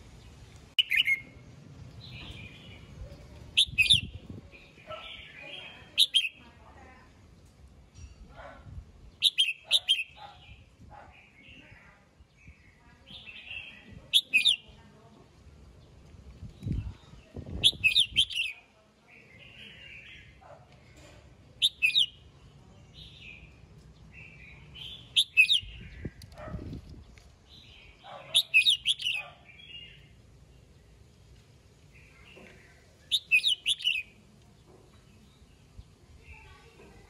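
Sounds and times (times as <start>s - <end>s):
bird singing bright phrases: 0.1s - 7.5s, 9.0s - 20.4s, 21.0s - 31.1s, 31.8s - 37.0s
soft bird chattering: 0.8s - 1.3s, 2.1s - 6.5s, 9.2s - 11.7s, 13.0s - 14.8s, 17.2s - 18.7s, 19.4s - 22.3s, 24.2s - 26.6s, 27.6s - 30.1s, 32.0s - 35.3s.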